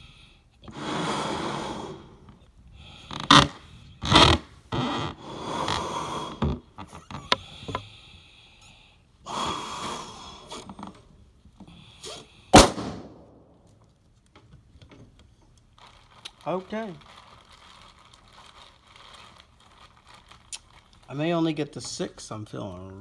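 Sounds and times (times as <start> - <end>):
breaths blown into balloon: 0.0 - 11.0, 11.7 - 12.8
balloon bursting bang: 12.5 - 13.5.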